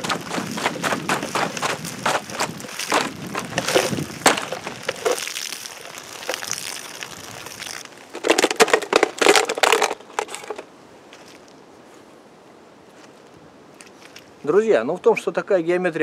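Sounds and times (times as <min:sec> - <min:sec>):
water splashing onto dry leaves: 0:00.0 - 0:10.6
plastic bottle crinkling: 0:00.0 - 0:11.5.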